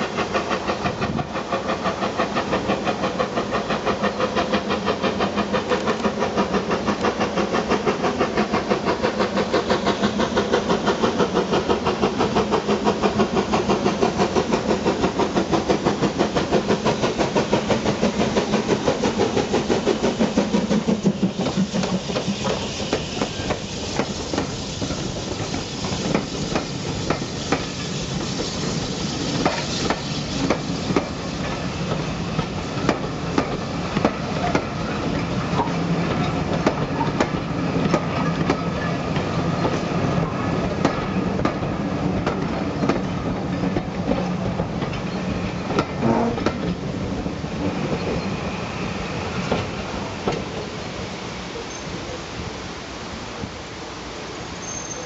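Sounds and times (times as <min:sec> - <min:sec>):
steam train rumbling past: 0:00.0 - 0:55.0
wheels clicking over rail joints: 0:11.4 - 0:39.8.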